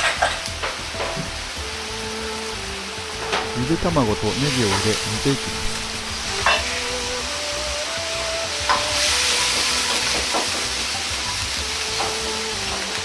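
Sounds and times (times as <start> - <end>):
liquid simmering in a wok: 5.8 - 13.0.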